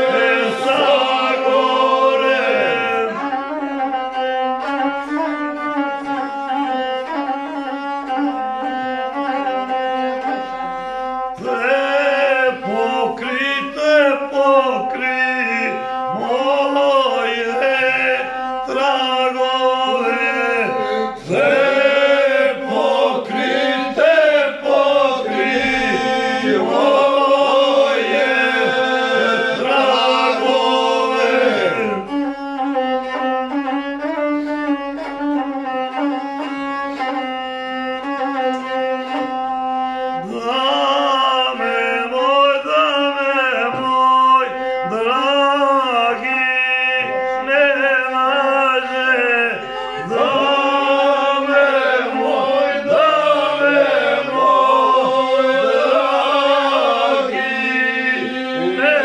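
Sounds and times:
men singing unaccompanied: 0.0s - 3.2s, 11.4s - 32.0s, 40.3s - 59.0s.

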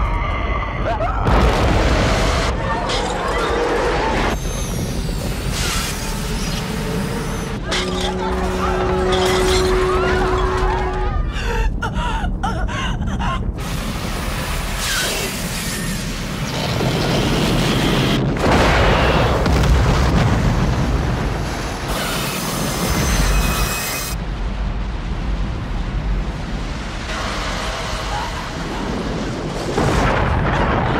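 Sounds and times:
heavy volcanic rumble: 0.0s - 5.5s, 9.7s - 15.4s, 16.1s - 21.9s, 24.2s - 30.9s
crashes and explosive blasts: 1.2s - 7.7s, 13.6s - 30.9s.

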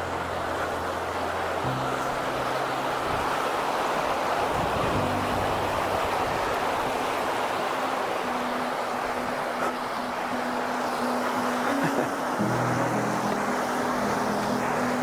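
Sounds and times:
stream rushing over stones: 0.0s - 15.0s.

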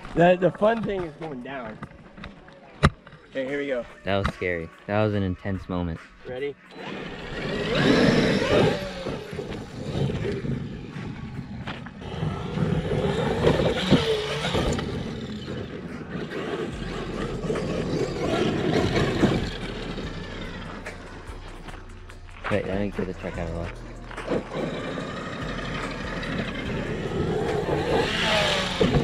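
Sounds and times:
rc truck motors whining: 6.7s - 22.1s, 23.2s - 29.0s.

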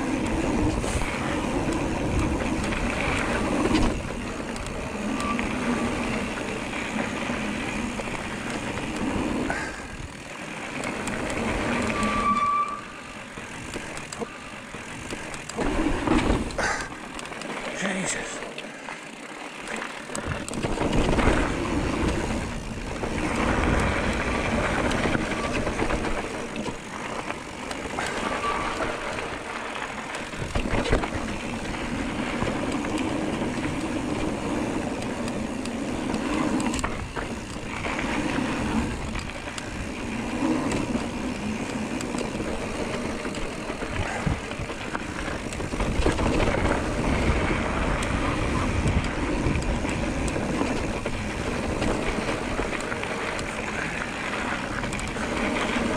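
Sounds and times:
bike tyres rolling on dirt: 0.0s - 55.9s
wind noise: 20.2s - 27.2s, 27.9s - 55.9s.

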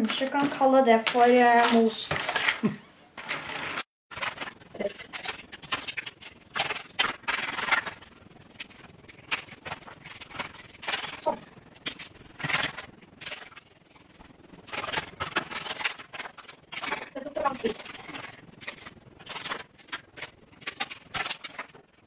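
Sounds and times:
pieces scraping on baking tray: 0.0s - 8.1s, 14.7s - 21.7s
gingerbread cracking and crunching: 0.0s - 13.6s, 14.6s - 22.0s.

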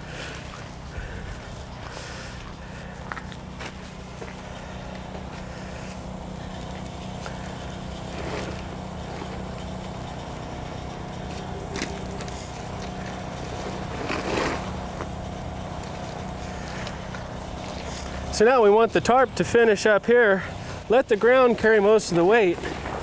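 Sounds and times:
truck engine idling: 0.0s - 23.0s
tarp rustles and scrapes: 8.0s - 9.5s, 11.3s - 14.9s.

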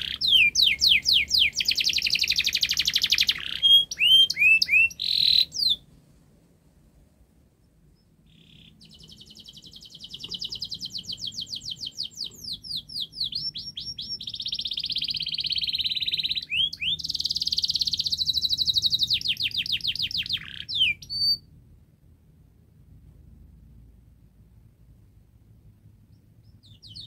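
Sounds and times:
canary singing: 0.0s - 5.9s, 7.6s - 21.5s, 26.1s - 27.0s.

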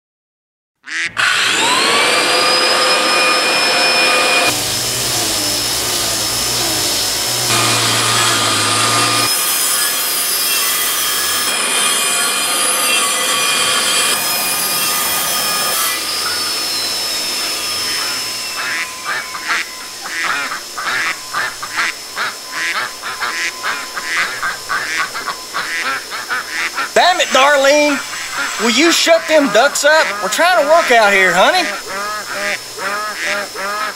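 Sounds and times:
ducks quacking: 0.9s - 1.2s, 18.0s - 33.9s
string trimmer running: 1.0s - 33.9s
circular saw whine: 1.1s - 33.9s.

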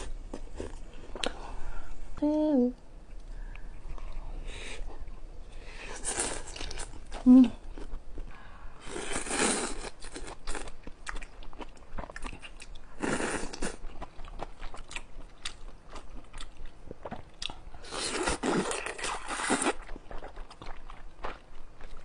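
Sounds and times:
wet chewing and smacking: 18.2s - 22.0s.

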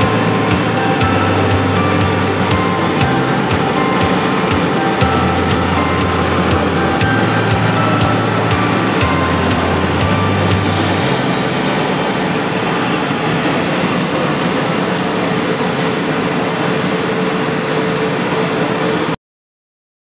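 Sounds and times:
low bass line: 0.0s - 13.8s
dense background music: 0.0s - 14.6s.

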